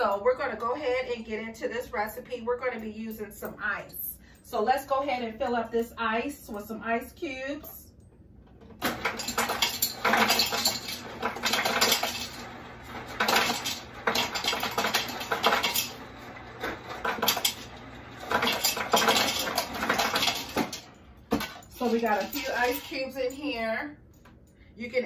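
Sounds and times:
ice cubes clattering into pitcher: 8.8s - 22.9s.

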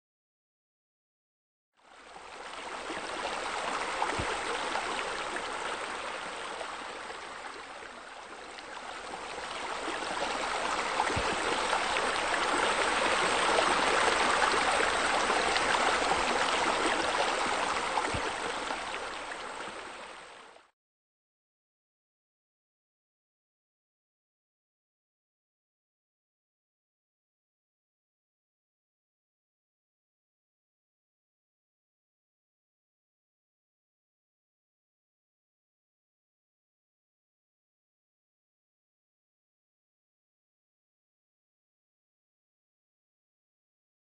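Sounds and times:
stream running water: 1.8s - 20.7s.

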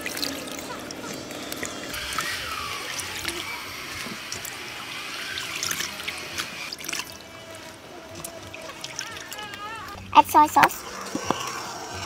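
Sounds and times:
water splashing and trickling: 0.0s - 12.0s
small drips and clicks: 2.9s - 4.6s, 5.3s - 7.3s.

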